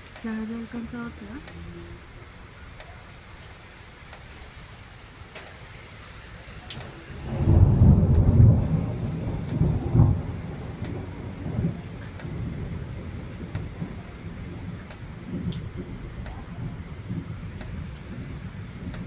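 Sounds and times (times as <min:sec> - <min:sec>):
thunder rumble and crack: 0:06.7 - 0:19.0.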